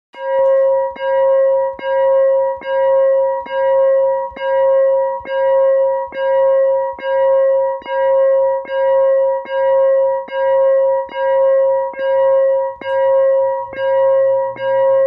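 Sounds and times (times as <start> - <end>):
synthesized crossing bell dinging: 0.2 - 15.0.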